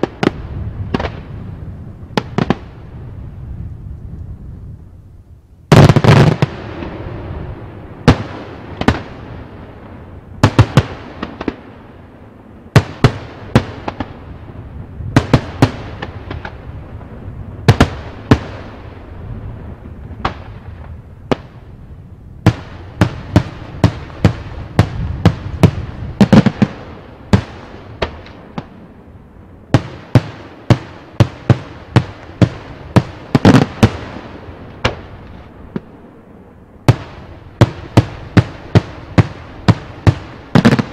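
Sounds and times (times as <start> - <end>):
fireworks bursting with echo: 0.0 - 4.5, 5.7 - 40.9.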